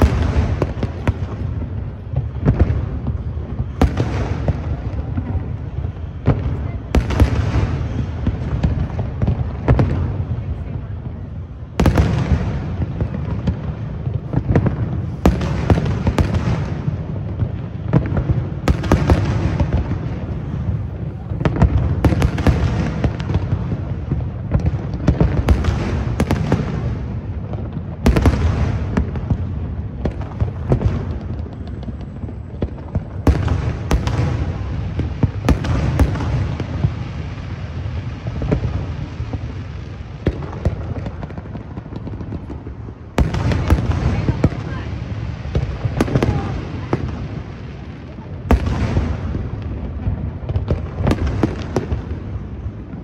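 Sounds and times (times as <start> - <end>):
fireworks bursting: 0.0 - 53.0
low rumble of fireworks: 0.0 - 53.0.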